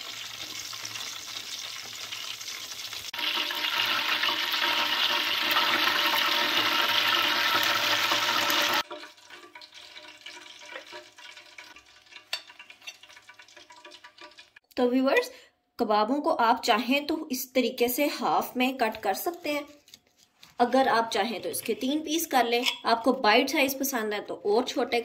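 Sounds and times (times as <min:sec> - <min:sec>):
food sizzling in hot oil: 0:00.0 - 0:14.6.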